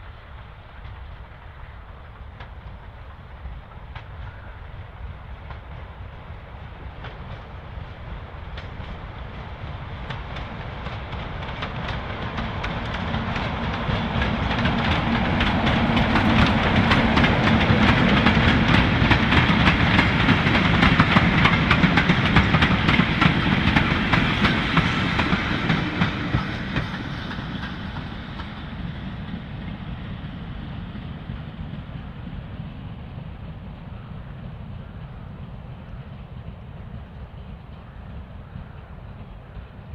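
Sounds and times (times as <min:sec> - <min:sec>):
diesel locomotive engine drone: 0:00.0 - 0:39.9
train wheels clattering: 0:06.8 - 0:32.1.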